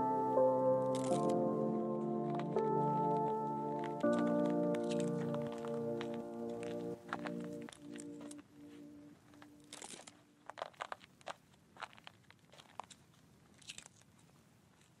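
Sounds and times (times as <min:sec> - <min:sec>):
background music: 0:00.0 - 0:10.4
faint crunches and clicks: 0:01.0 - 0:01.4, 0:02.2 - 0:08.5, 0:09.1 - 0:15.0.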